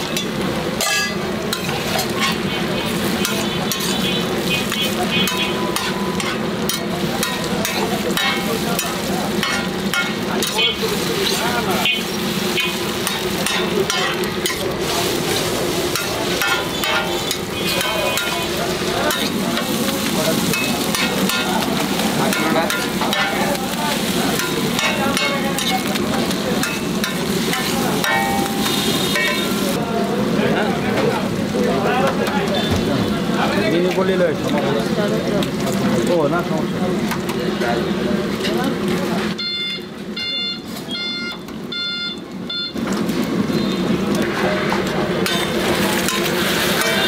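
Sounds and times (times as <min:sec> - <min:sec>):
food sizzling: 0:00.0 - 0:47.0
metal spatula scraping griddle: 0:00.1 - 0:29.7, 0:44.6 - 0:47.0.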